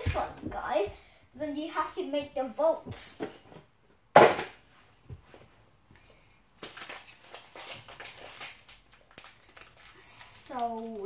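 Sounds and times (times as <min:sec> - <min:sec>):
plastic packet crinkling: 0:06.6 - 0:11.0.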